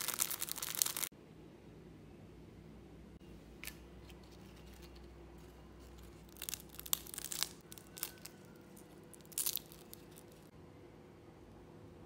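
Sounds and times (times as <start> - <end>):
rice paper crackling and snapping: 0.0 - 1.1, 5.9 - 10.5.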